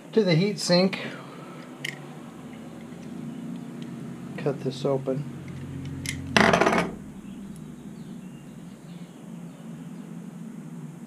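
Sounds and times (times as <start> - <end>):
small metal clinks: 1.6 - 3.9.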